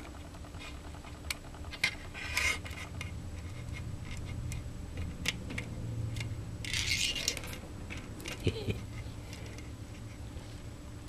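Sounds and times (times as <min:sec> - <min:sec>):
small plastic parts clicking: 0:00.0 - 0:08.4.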